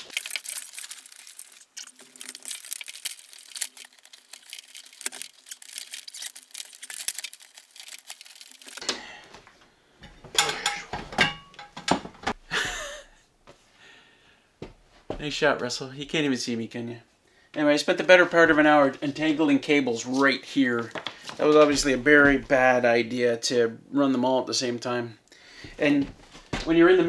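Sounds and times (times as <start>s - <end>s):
cables rustling and crinkling: 0.0s - 11.0s, 17.9s - 22.8s
stepladder knocks and clatter: 10.2s - 12.4s.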